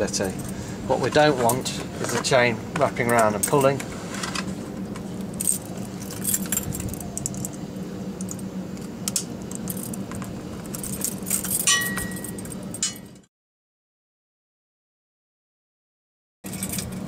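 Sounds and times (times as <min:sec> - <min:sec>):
steady low hum: 0:00.0 - 0:13.3
chain links clinking: 0:05.4 - 0:07.6, 0:09.5 - 0:10.0, 0:10.6 - 0:13.2, 0:16.4 - 0:17.0.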